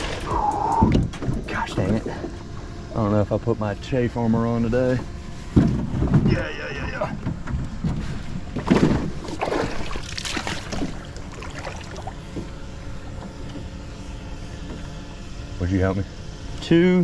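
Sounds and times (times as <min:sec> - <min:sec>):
water sloshing: 0:07.8 - 0:12.6.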